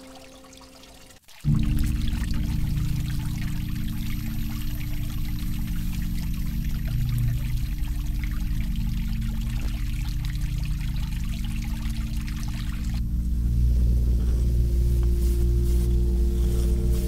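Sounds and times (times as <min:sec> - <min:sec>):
water trickling into pond: 0:00.0 - 0:13.6
low steady hum: 0:00.0 - 0:17.0.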